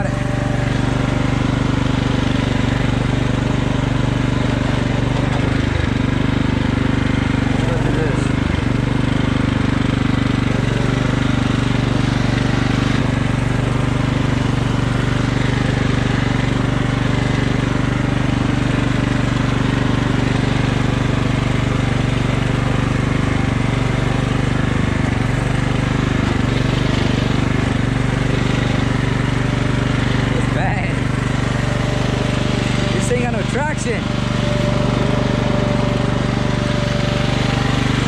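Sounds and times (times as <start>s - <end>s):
riding mower engine running: 0.0s - 38.0s.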